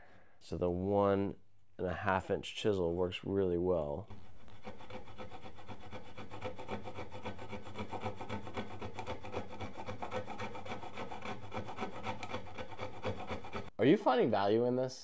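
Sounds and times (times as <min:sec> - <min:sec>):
sandpaper scratching wood: 0:04.2 - 0:13.7.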